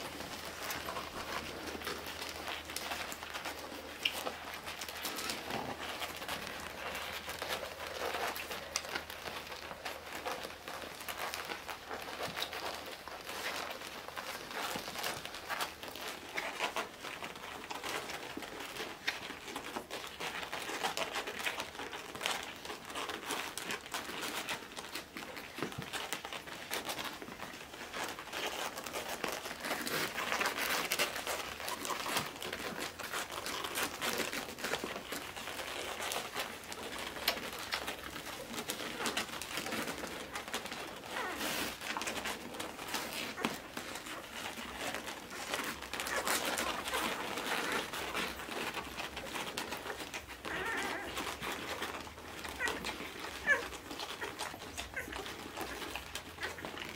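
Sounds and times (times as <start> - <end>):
puppies squeaking and grunting: 0.0 - 56.9
puppies suckling: 0.0 - 56.9
rustling on a pad: 0.0 - 56.9.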